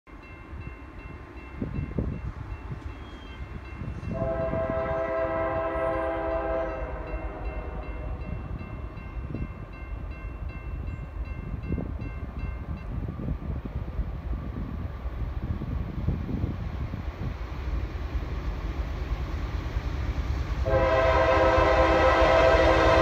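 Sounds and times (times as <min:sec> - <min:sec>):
train rumbling: 0:00.1 - 0:23.0
distant locomotive horn: 0:02.9 - 0:08.8, 0:20.6 - 0:23.0.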